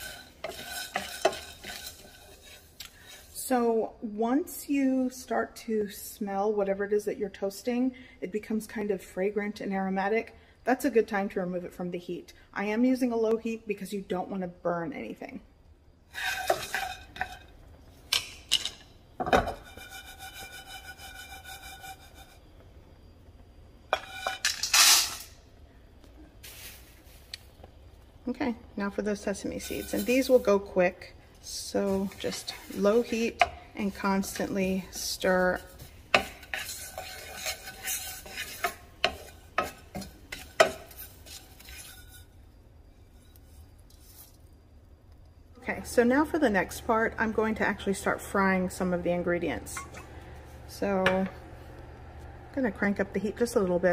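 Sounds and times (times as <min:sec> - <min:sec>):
wooden spatula scraping skillet: 0:00.0 - 0:03.8, 0:16.1 - 0:22.5, 0:23.9 - 0:25.3, 0:29.1 - 0:44.4.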